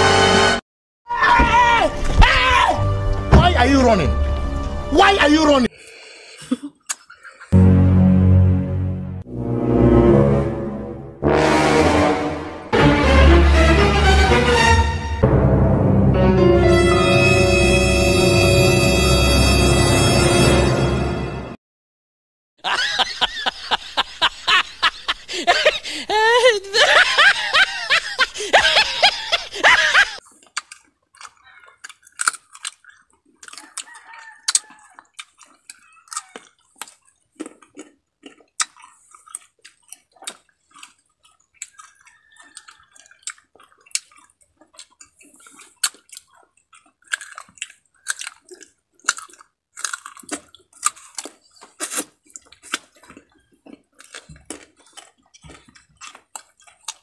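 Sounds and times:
loud laughter-like voice: 0:22.6 - 0:30.2
crunchy fruit being chewed: 0:30.2 - 0:57.0.

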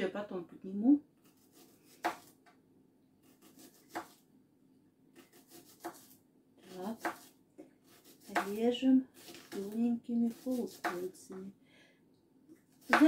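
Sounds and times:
knife slicing onion on board: 0:01.2 - 0:02.4, 0:03.2 - 0:04.2, 0:05.2 - 0:08.6, 0:09.2 - 0:11.2, 0:12.8 - 0:13.0.

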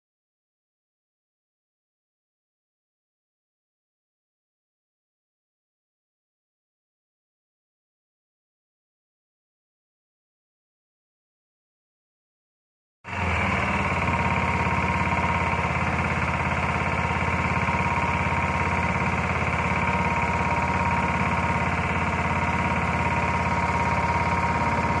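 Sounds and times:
boat engine running: 0:13.1 - 0:25.0.

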